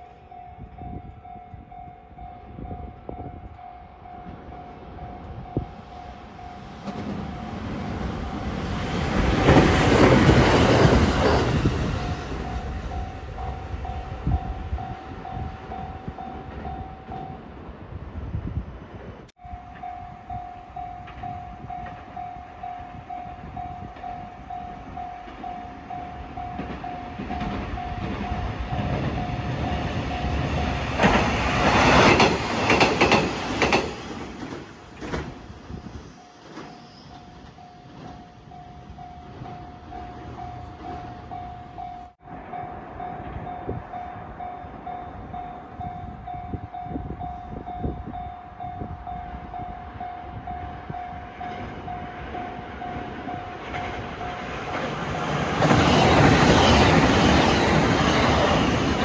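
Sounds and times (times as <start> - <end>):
diesel railcar passing: 0.0 - 59.0
train arriving: 0.0 - 59.0
level-crossing bell dinging: 12.0 - 17.5, 19.4 - 30.9, 36.0 - 54.6.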